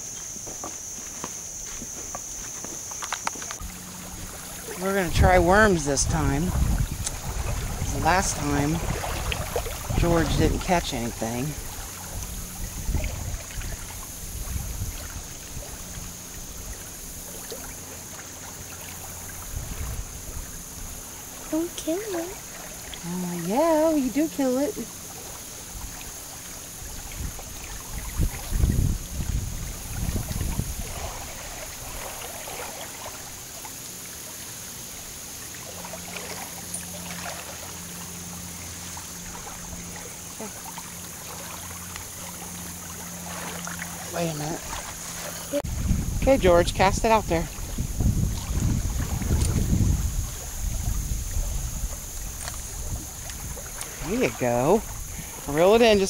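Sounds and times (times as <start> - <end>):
faint ticks: 2.0 - 3.7
wind rumble on microphone: 3.6 - 24.9, 25.6 - 32.5, 42.9 - 56.0.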